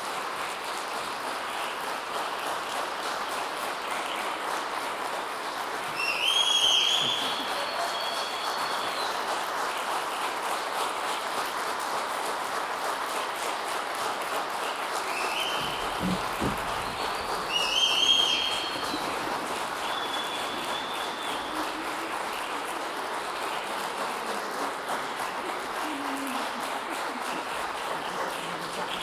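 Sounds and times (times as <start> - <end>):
audience applauding: 0.0 - 29.0
short high calls: 15.1 - 21.8.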